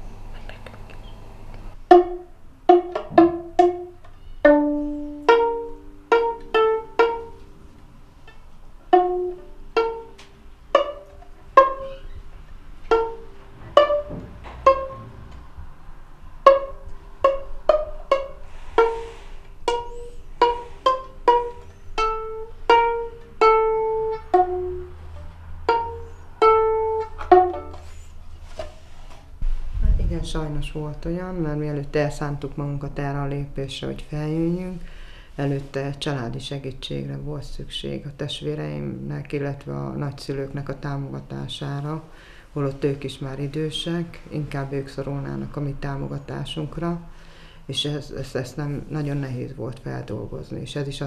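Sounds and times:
pizzicato strings melody: 0:01.7 - 0:28.7.

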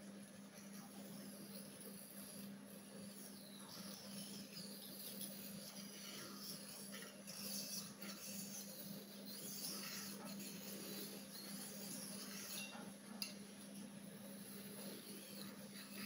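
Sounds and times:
knife scraping on sharpening stone: 0:03.1 - 0:13.5, 0:14.3 - 0:16.0.

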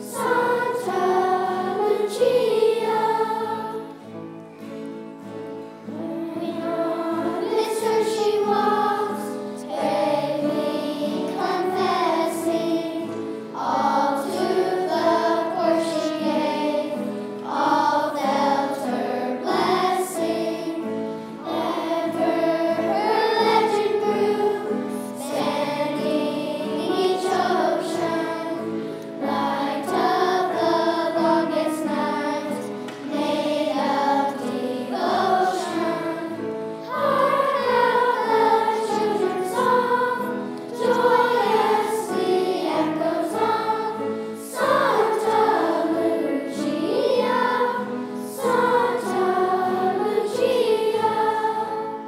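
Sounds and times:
children's choir singing: 0:00.0 - 0:52.0
singers breathing: 0:21.0 - 0:21.4, 0:28.8 - 0:29.1.

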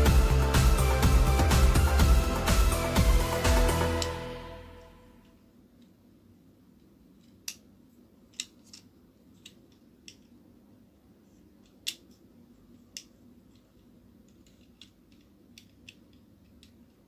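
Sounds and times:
plastic puzzle pieces clicking: 0:07.2 - 0:07.7, 0:08.3 - 0:10.3, 0:11.6 - 0:12.2, 0:12.9 - 0:17.0.

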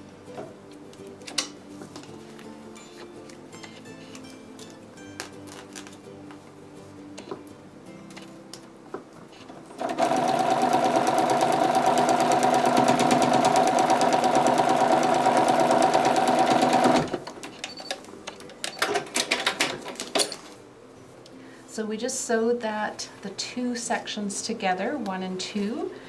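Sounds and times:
sewing machine stitching: 0:09.8 - 0:17.6.

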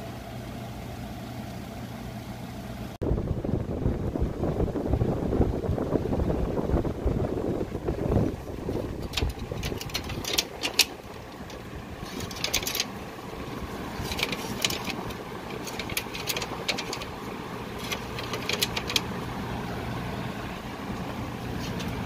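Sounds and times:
air conditioner humming: 0:00.0 - 0:22.0
grille panel rattling: 0:08.6 - 0:19.2.

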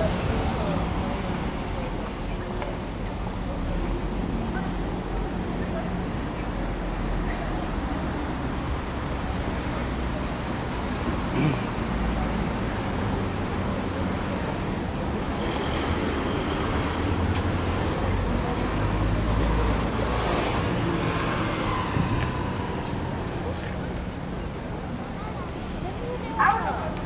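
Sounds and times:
car engines passing: 0:00.0 - 0:27.0
faint murmur of pedestrians: 0:00.0 - 0:27.0.

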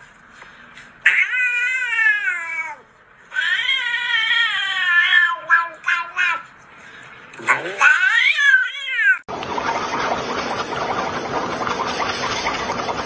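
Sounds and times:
cat meowing: 0:07.8 - 0:09.3.

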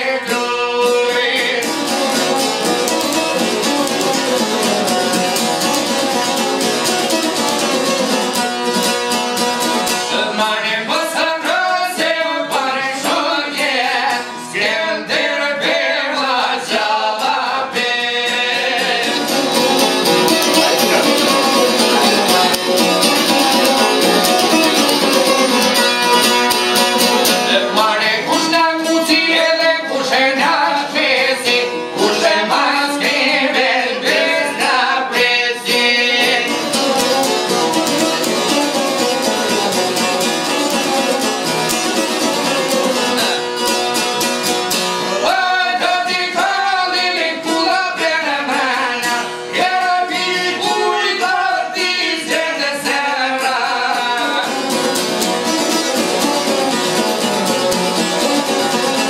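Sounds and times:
plucked lutes strumming: 0:00.0 - 0:15.9, 0:16.8 - 0:59.0.

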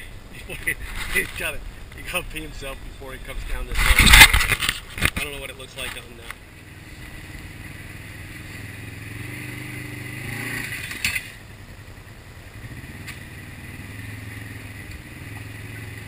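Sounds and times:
vehicle engine running at low revs: 0:05.3 - 0:16.0.

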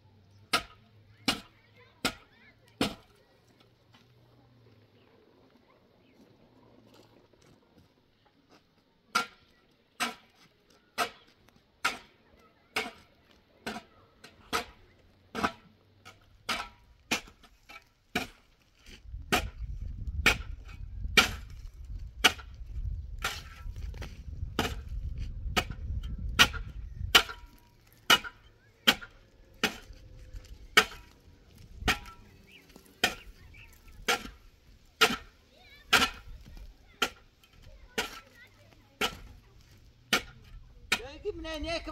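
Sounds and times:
hand tool striking wood: 0:12.8 - 0:18.4, 0:19.3 - 0:19.6, 0:20.2 - 0:22.6, 0:23.2 - 0:38.3, 0:39.0 - 0:39.4, 0:40.1 - 0:41.1.

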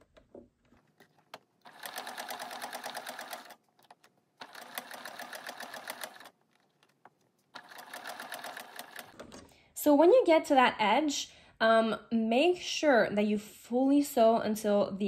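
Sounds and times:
sewing machine needle clattering: 0:01.1 - 0:06.3, 0:07.5 - 0:09.4.

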